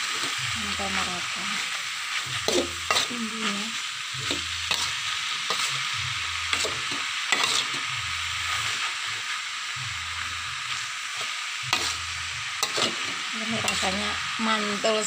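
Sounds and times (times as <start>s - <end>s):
food sizzling in a wok: 0.0s - 15.0s
metal spatula scraping pan: 2.2s - 3.3s, 4.2s - 9.2s, 11.7s - 14.0s.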